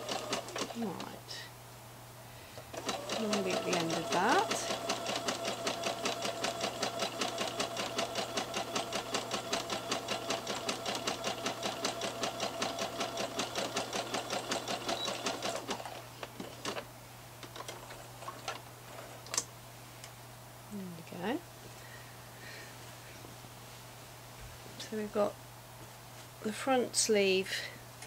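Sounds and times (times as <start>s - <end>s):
sewing machine stitching: 0.0s - 1.1s, 2.7s - 16.8s.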